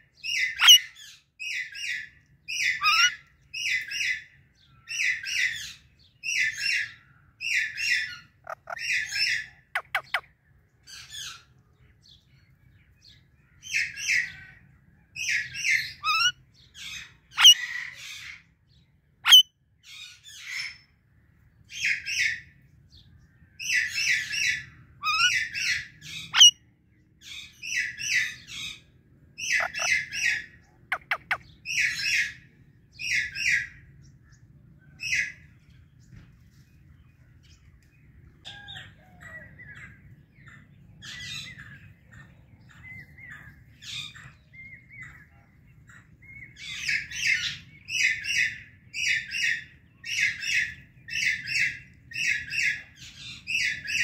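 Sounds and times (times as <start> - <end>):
parakeet screeching: 0.5 - 0.9, 2.7 - 3.2, 8.4 - 9.2, 26.3 - 26.5, 29.5 - 32.3.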